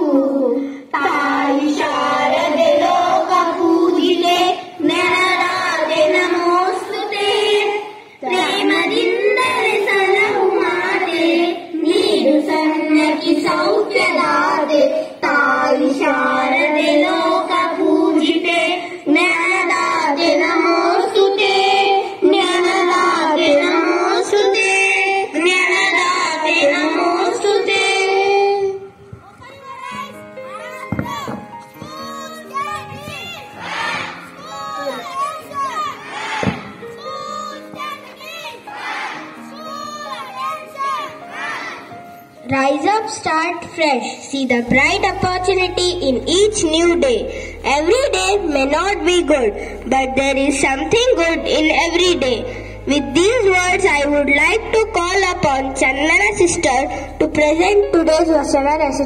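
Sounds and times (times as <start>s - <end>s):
boy singing: 0.0s - 33.3s
singer breathing: 0.6s - 1.0s, 7.9s - 8.2s, 47.2s - 47.7s, 49.5s - 49.9s, 52.4s - 52.9s, 56.9s - 57.2s.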